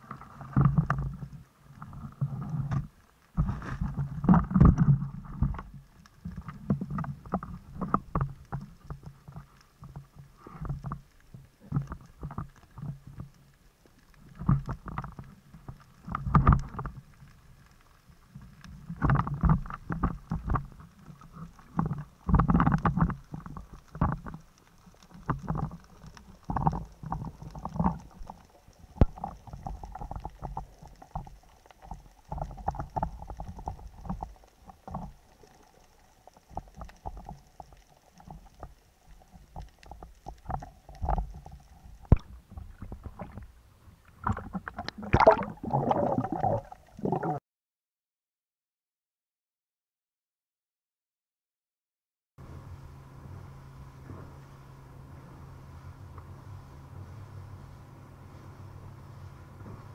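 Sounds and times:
muffled underwater thuds and clicks: 0.0s - 47.4s.

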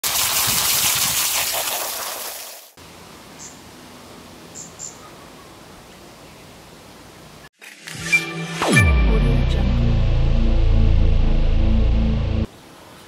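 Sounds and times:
garden hose spraying water: 0.0s - 2.8s
low steady background hiss: 2.8s - 7.5s.

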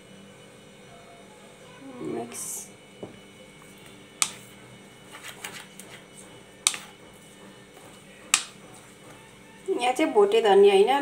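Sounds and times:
spoon stirring and scraping batter: 3.6s - 9.7s
spoon knocking plastic bowl: 6.6s - 6.9s.

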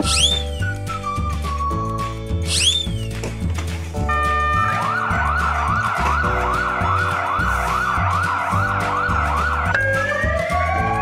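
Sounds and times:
background music with bass beat: 0.0s - 11.0s
fast whooping siren: 4.5s - 11.0s.

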